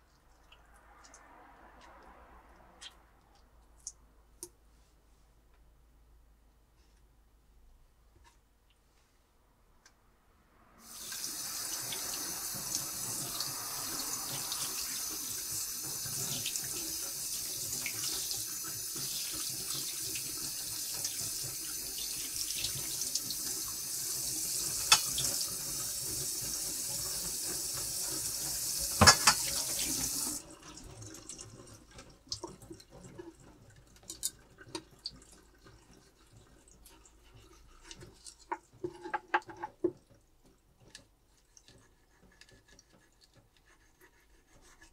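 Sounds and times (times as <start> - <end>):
tap running into sink: 24.7 - 30.4.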